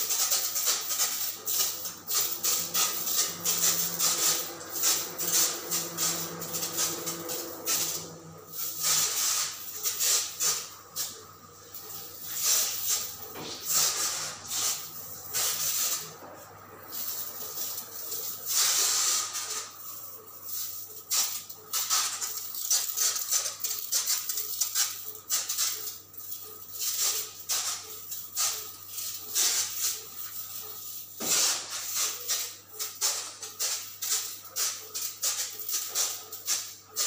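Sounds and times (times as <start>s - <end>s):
pressure sprayer hissing: 0.0s - 37.0s
steady low hum: 1.3s - 18.5s.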